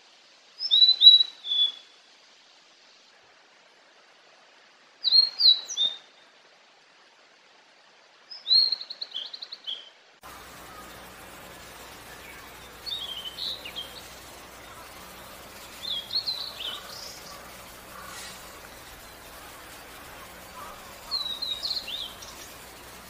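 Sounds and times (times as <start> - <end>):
background hiss: 0.0 - 23.0
bird whistling song: 0.6 - 2.0, 5.0 - 6.1, 8.3 - 11.0, 11.6 - 23.0.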